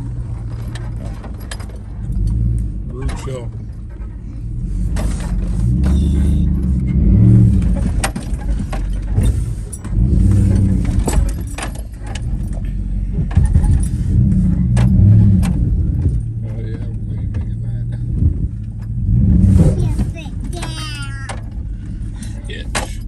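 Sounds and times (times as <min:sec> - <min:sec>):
suv engine rumbling: 0:00.0 - 0:23.0
loose items rattling in cabin: 0:07.5 - 0:19.0, 0:19.6 - 0:23.0.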